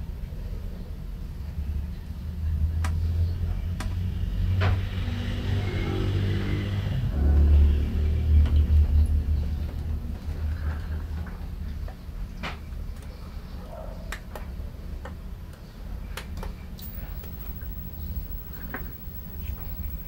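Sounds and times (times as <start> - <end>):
speaker low rumbling: 6.8 - 11.7, 16.8 - 20.0.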